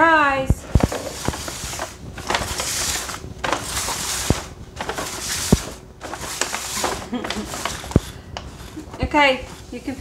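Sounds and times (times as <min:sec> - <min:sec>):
bag rustling and crinkling: 0:00.6 - 0:09.9.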